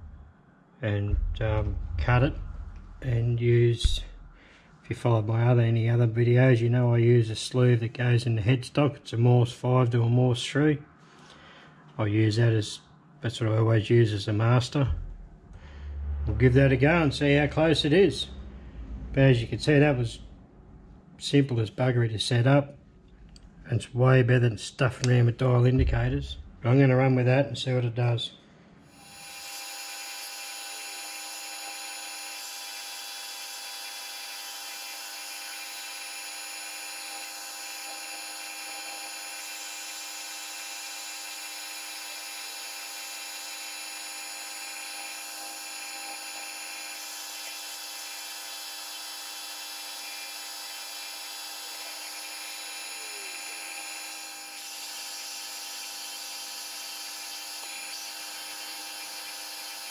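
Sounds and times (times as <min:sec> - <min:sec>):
metal lathe whining: 0:28.9 - 0:59.9.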